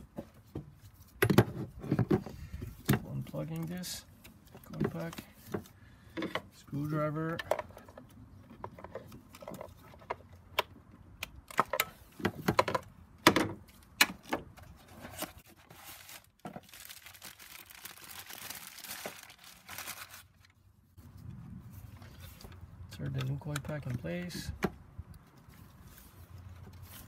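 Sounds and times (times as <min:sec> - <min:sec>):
crinkling rustle: 0:14.7 - 0:22.7.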